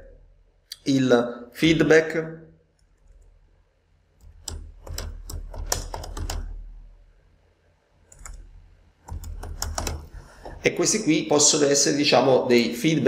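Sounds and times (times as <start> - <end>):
typing on a keyboard: 4.2 - 6.5, 8.1 - 8.4, 9.1 - 10.2.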